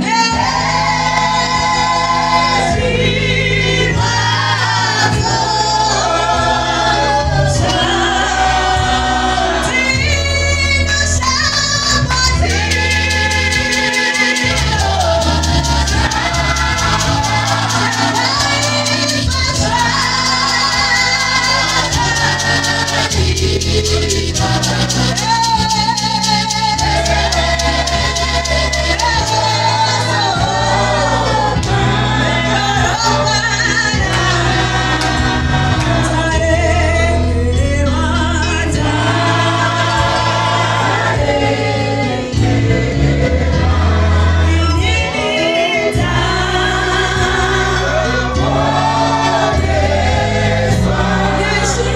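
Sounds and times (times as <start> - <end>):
backing singers: 0.0 - 11.2, 11.8 - 51.9
woman singing into a microphone: 0.0 - 40.2, 44.3 - 49.6
steady bass line and beat: 12.4 - 36.6.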